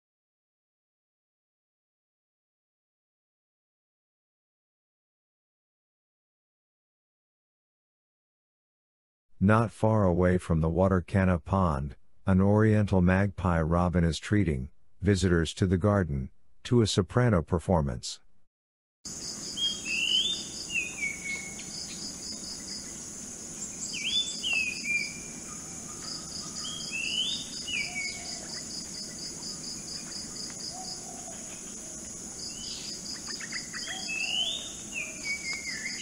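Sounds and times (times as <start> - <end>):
high insect hum: 19.1 - 36.0
rapid insect pulsing: 19.1 - 36.0
bird singing whistled notes: 19.4 - 23.0, 23.6 - 31.4, 32.4 - 36.0.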